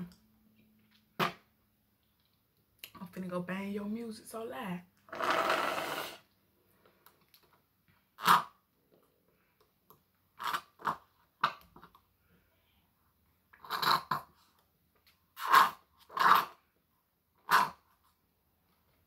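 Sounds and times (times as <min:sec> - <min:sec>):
slurping through a straw: 0:05.1 - 0:06.4, 0:13.5 - 0:14.5, 0:15.3 - 0:16.7.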